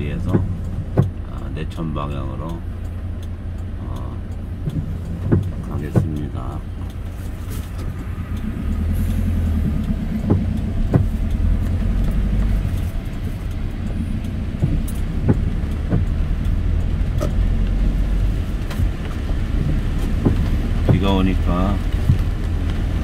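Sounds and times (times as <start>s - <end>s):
engine and tyre rumble: 0.0s - 23.0s
sharp ticks: 0.0s - 23.0s.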